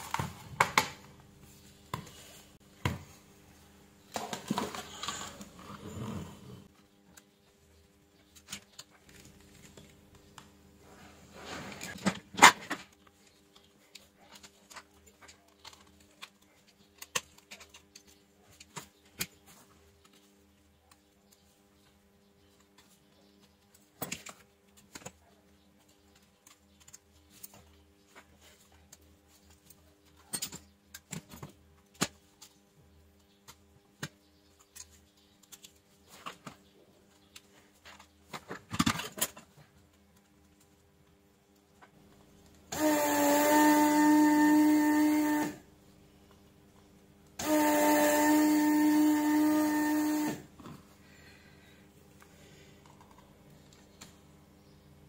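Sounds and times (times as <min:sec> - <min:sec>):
small electric motor whining: 0:42.7 - 0:45.6, 0:47.4 - 0:50.5.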